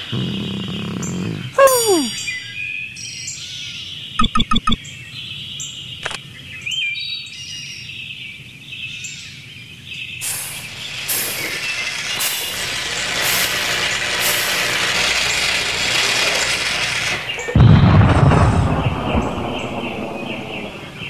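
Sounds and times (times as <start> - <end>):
faint bird chirps: 0.0 - 11.8
low rumble: 17.6 - 21.0.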